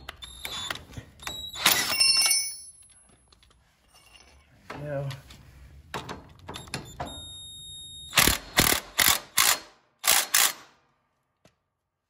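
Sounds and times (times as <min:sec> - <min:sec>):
impact wrench hammering: 0:08.1 - 0:10.8.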